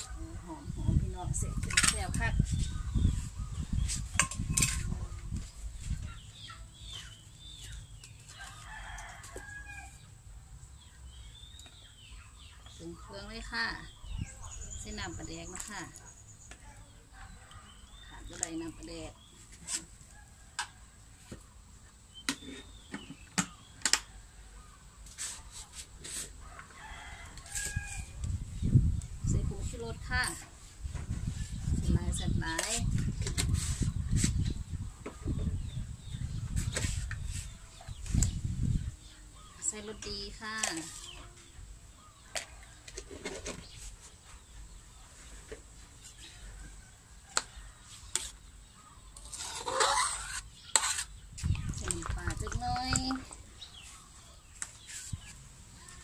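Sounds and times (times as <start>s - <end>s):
spatula scraping metal wok: 49.2s - 51.3s.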